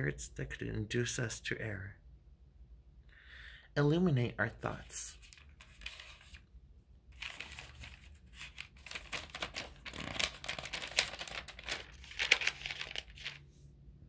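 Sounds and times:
paper pages rustling: 0:05.1 - 0:06.4, 0:07.1 - 0:13.6.

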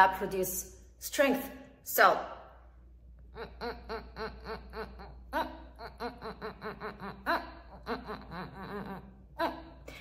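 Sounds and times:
woman laughing: 0:03.4 - 0:10.0.

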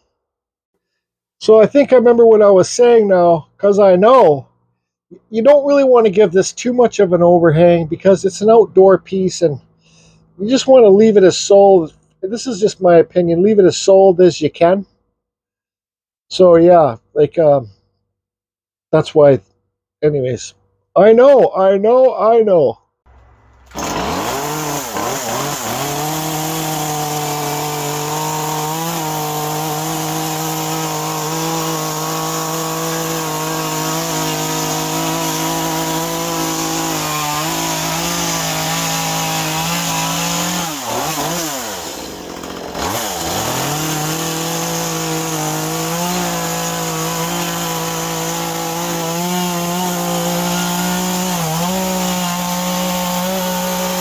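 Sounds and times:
chainsaw cutting wood: 0:23.1 - 0:54.0.

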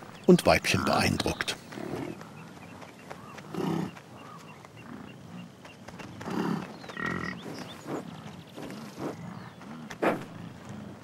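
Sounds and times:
bison grunting: 0:06.1 - 0:11.0.

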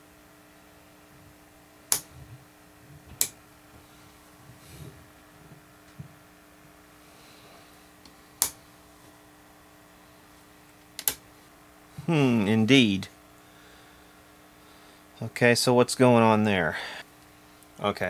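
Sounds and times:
faint steady hum: 0:00.0 - 0:18.0
toggle switch clicks: 0:01.9 - 0:02.1, 0:03.2 - 0:03.4, 0:11.0 - 0:11.2.

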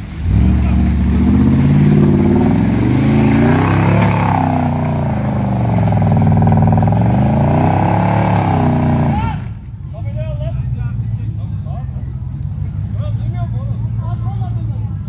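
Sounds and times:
suv engine revving hard: 0:00.0 - 0:09.5.

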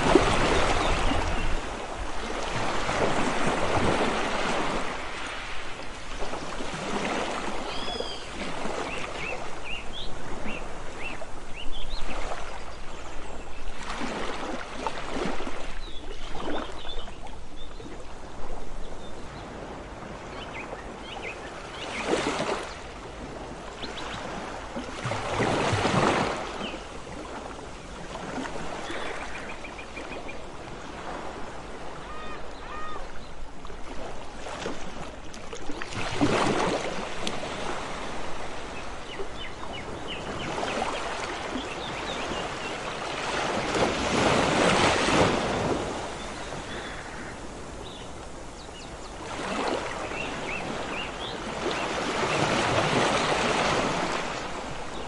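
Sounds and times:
surf washing onto beach: 0:00.0 - 0:12.7, 0:40.0 - 0:55.0.

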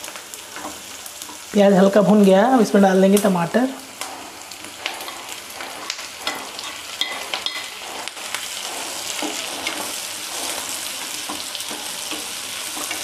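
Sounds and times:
tomatoes sizzling in a hot pan: 0:00.0 - 0:13.0
wooden spatula knocking and scraping: 0:03.9 - 0:13.0.

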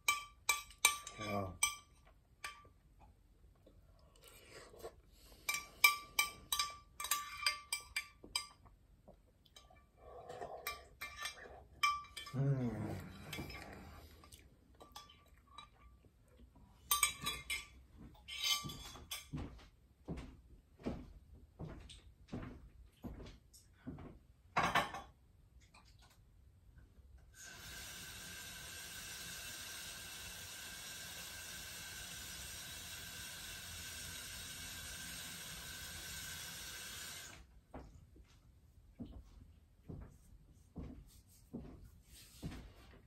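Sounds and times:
spoon clinking against glass bowl: 0:00.0 - 0:02.7, 0:05.5 - 0:08.6, 0:10.6 - 0:12.4, 0:16.9 - 0:19.2.

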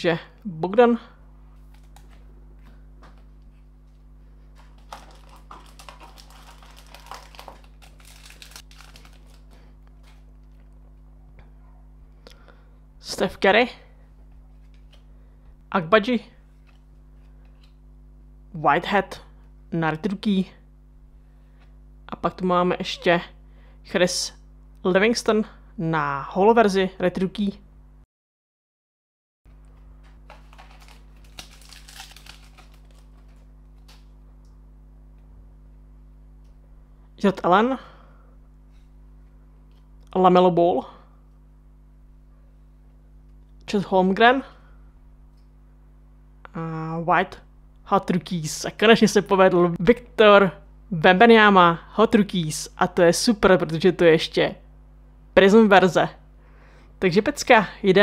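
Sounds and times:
steady low hum: 0:00.0 - 0:28.1, 0:29.5 - 0:58.0
cards rustling in hand: 0:01.6 - 0:10.9, 0:30.0 - 0:34.1
foil wrapper crinkling: 0:03.9 - 0:10.8, 0:30.1 - 0:34.1.

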